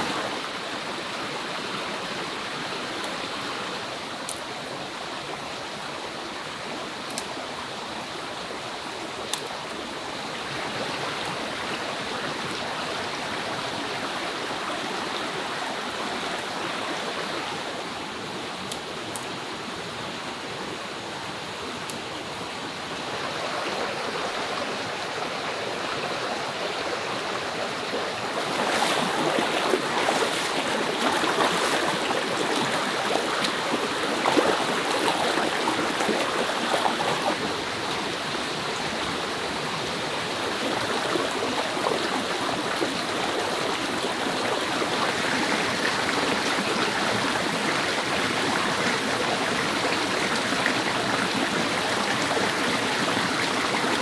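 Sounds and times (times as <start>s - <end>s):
running water rushing: 0.0s - 54.0s.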